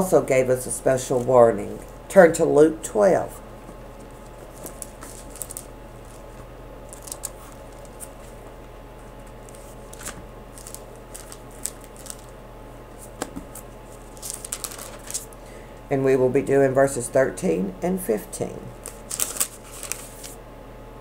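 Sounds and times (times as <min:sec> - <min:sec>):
steady low hum: 0:00.0 - 0:21.0
paper pages rustling: 0:03.9 - 0:15.4, 0:18.8 - 0:20.4
soft paper crackles: 0:03.9 - 0:15.4, 0:18.8 - 0:20.4.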